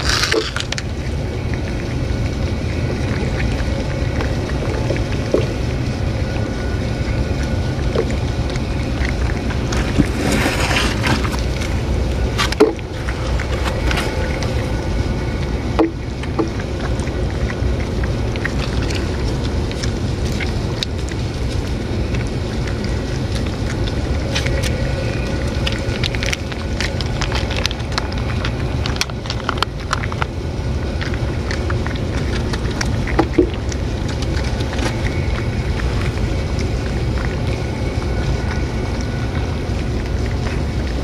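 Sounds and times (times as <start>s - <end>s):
cats chewing and licking: 0.0s - 41.0s
low rumble: 0.0s - 41.0s.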